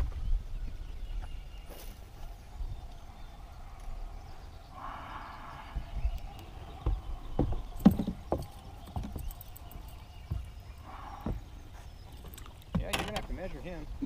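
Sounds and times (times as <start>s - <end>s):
hollow knocks on boat deck: 6.8s - 9.3s.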